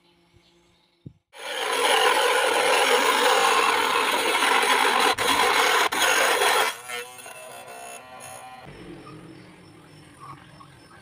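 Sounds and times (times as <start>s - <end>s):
mini saw rasping through plastic: 1.4s - 8.5s.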